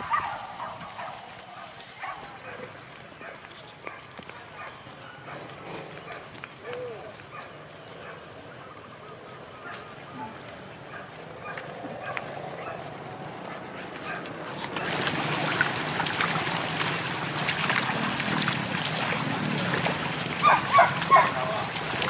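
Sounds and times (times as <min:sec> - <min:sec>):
open-air background: 0:00.0 - 0:22.0
water splashing and sloshing: 0:10.3 - 0:22.0
footfall splashes: 0:13.4 - 0:22.0.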